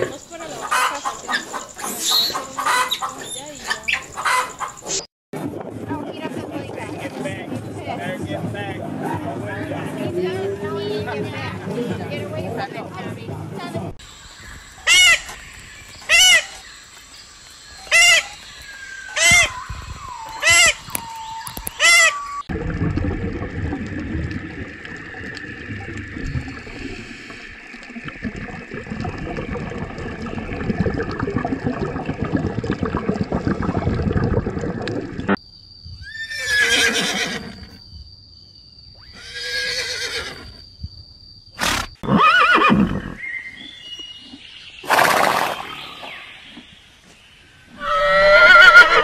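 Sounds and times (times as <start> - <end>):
horses neighing: 36.0 - 37.7, 39.2 - 40.4, 41.6 - 43.2, 47.8 - 49.0.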